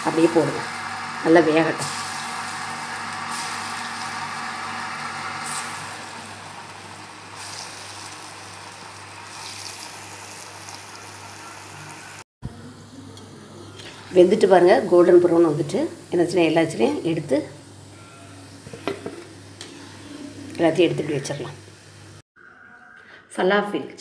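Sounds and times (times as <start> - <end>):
food sizzling in hot oil: 0.0 - 12.2.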